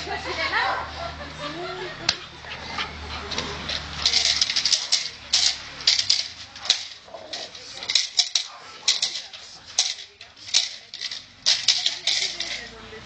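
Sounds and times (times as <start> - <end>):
sharp clicks and rattles: 3.3 - 12.7.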